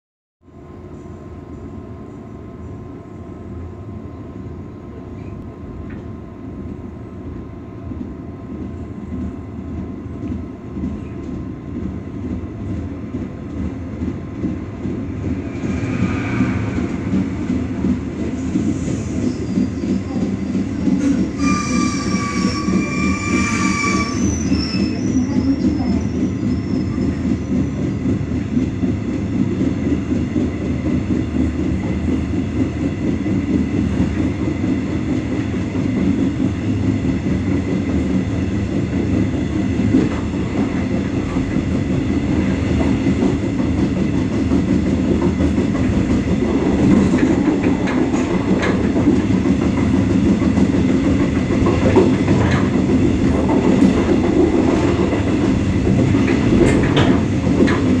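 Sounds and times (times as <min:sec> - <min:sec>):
train low rumble: 0:00.4 - 0:58.0
wheels clicking over rail joints: 0:45.1 - 0:58.0.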